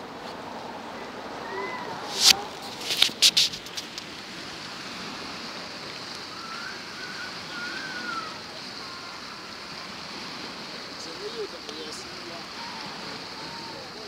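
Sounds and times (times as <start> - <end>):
outdoor background hiss: 0.0 - 14.0
faint wavering whistle: 6.2 - 9.6.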